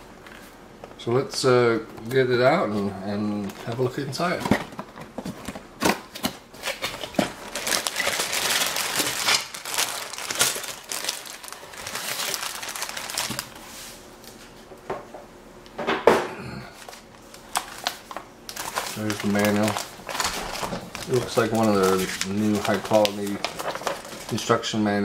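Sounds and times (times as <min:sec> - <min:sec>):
plastic bags crinkling and rustling: 0:02.1 - 0:13.9, 0:16.7 - 0:24.8.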